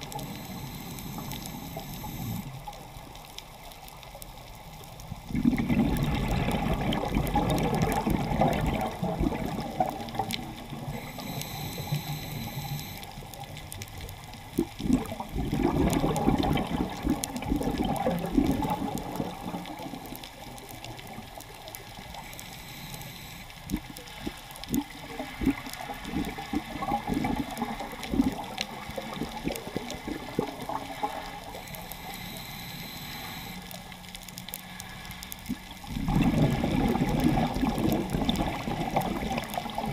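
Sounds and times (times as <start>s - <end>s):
regulator inhale hiss: 0.0s - 2.7s, 10.9s - 13.2s, 22.0s - 24.4s, 31.5s - 35.4s
exhaled bubbles rushing: 5.3s - 11.0s, 14.6s - 21.4s, 23.7s - 31.5s, 35.5s - 39.9s.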